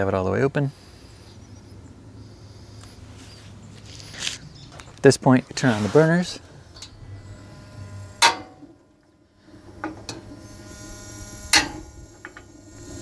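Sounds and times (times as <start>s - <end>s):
loud igniter clicks: 8.2s - 8.6s, 11.5s - 12.5s.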